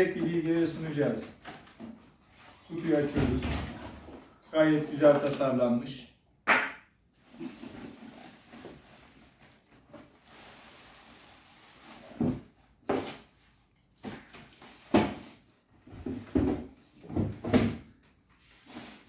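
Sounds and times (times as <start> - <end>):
cardboard box knocks and thumps: 15.9 - 17.8.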